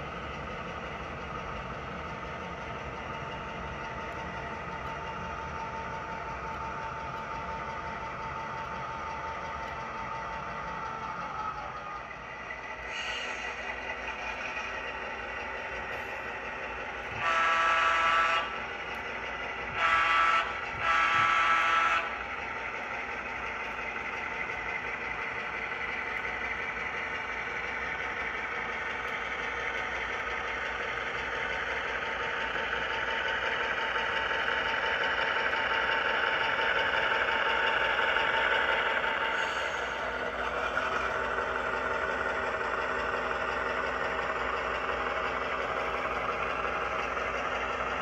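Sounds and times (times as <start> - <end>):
model diesel engine running: 0.0 - 48.0
air horn blasts: 17.1 - 18.5, 19.7 - 22.2.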